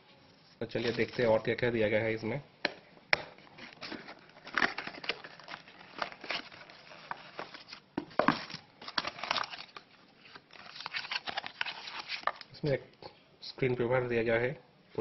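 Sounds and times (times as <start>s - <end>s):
packaging rustling and crinkling: 0.8s - 1.4s, 3.3s - 12.5s.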